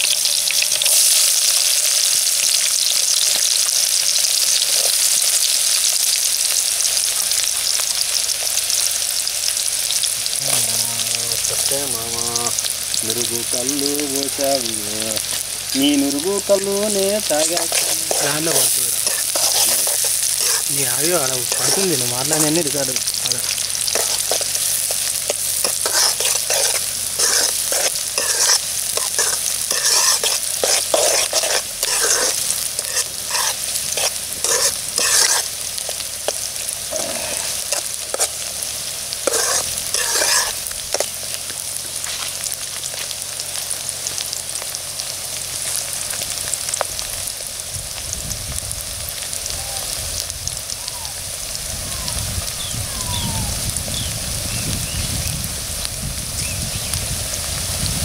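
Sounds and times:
onions sizzling in hot oil: 0:00.0 - 0:58.0
metal ladle scraping pot: 0:17.4 - 0:20.8, 0:23.6 - 0:38.4, 0:39.2 - 0:41.1.

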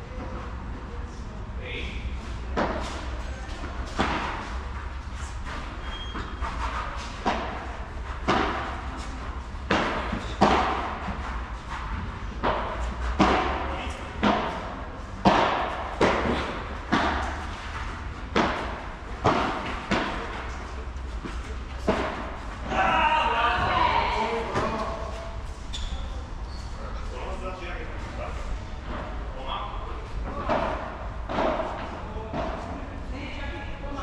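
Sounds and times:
ball bouncing off court and walls: 0:02.5 - 0:04.8, 0:05.5 - 0:20.6, 0:21.2 - 0:22.9, 0:30.3 - 0:32.7
rackets striking ball: 0:02.5 - 0:04.8, 0:05.5 - 0:22.9, 0:30.3 - 0:32.7.

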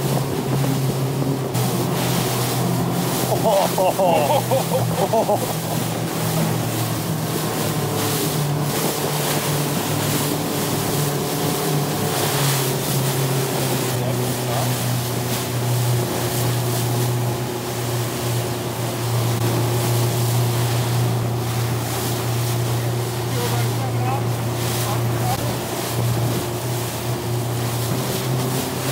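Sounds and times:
wind on microphone: 0:00.0 - 0:03.0
motorboat engine running: 0:00.0 - 0:28.9
water rushing: 0:00.0 - 0:28.9.

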